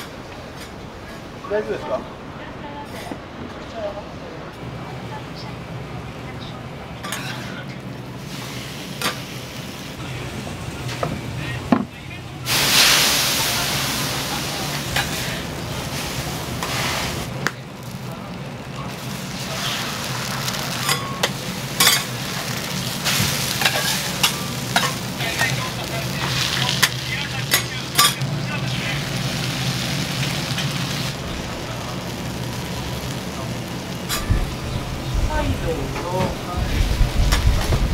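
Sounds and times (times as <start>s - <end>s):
food sizzling on a griddle: 8.2s - 11.7s, 12.4s - 37.9s.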